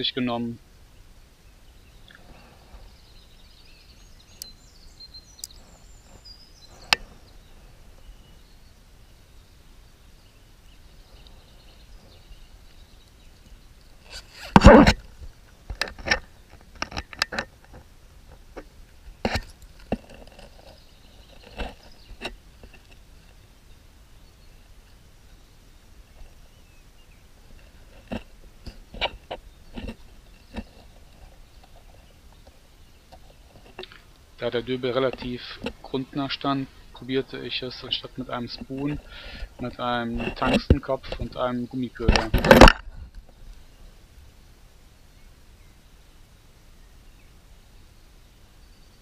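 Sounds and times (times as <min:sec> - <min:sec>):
faint outdoor background: 0:00.0 - 0:49.0.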